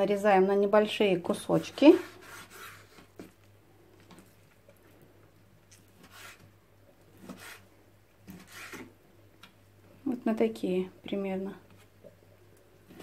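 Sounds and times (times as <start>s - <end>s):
knife cutting on wooden board: 1.7s - 3.3s, 6.0s - 6.5s, 7.2s - 7.7s, 8.3s - 8.9s.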